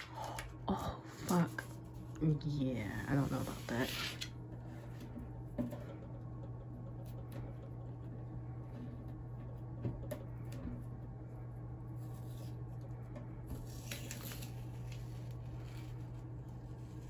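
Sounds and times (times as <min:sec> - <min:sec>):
tape peeling off paper: 0:13.7 - 0:15.3.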